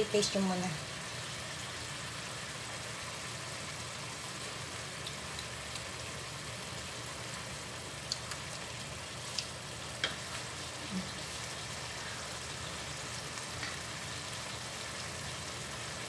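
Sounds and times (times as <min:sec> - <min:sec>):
vegetables sizzling in a wok: 0:00.0 - 0:16.0
wooden spoon clicking on pan: 0:09.3 - 0:10.3.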